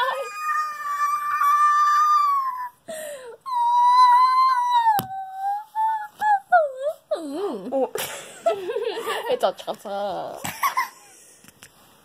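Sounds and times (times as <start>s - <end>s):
child's high-pitched wail: 0.0s - 2.8s, 3.4s - 7.0s.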